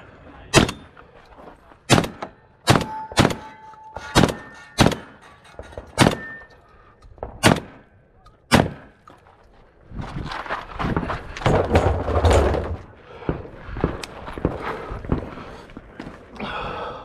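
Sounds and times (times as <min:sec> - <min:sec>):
gunshots: 0:00.5 - 0:00.9, 0:01.9 - 0:05.2, 0:05.9 - 0:06.3, 0:07.4 - 0:07.9, 0:08.5 - 0:09.0.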